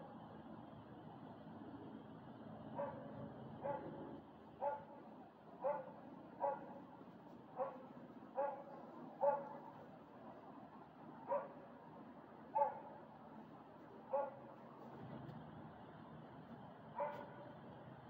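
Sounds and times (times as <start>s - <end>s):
dog barking: 2.8s - 4.0s, 4.6s - 5.0s, 5.6s - 6.8s, 7.6s - 9.7s, 11.3s - 11.6s, 12.6s - 13.0s, 14.1s - 14.5s, 17.0s - 17.4s.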